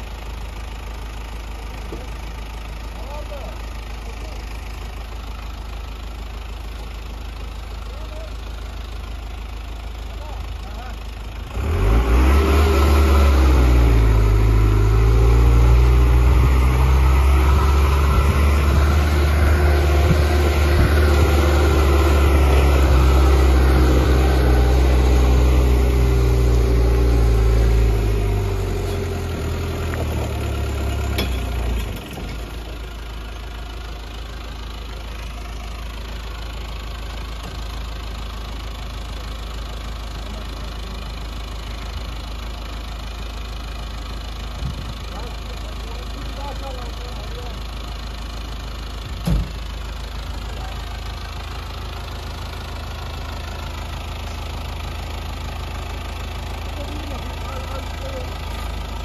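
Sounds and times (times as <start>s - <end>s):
truck engine working hard: 0.0s - 59.0s.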